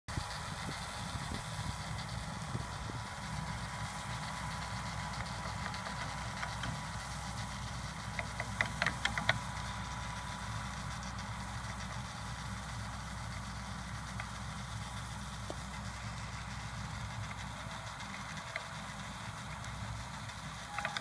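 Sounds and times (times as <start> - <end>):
engine running steadily: 0.1 - 21.0.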